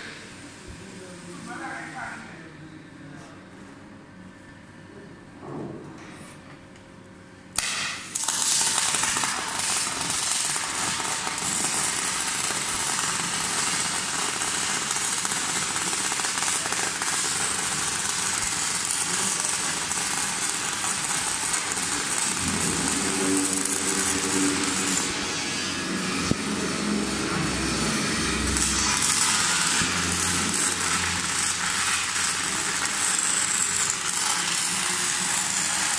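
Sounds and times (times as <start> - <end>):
harsh crackling metalwork: 7.6 - 35.9
low droning hum: 19.9 - 35.9.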